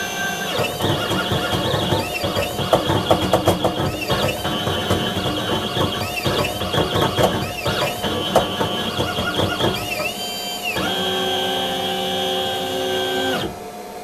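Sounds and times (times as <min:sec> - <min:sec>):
engraving machine motors whining: 0:00.0 - 0:13.7.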